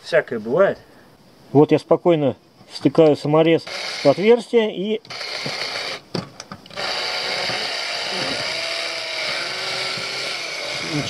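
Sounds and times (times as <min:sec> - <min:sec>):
cordless drill driving screw: 0:03.6 - 0:04.3, 0:05.0 - 0:11.0.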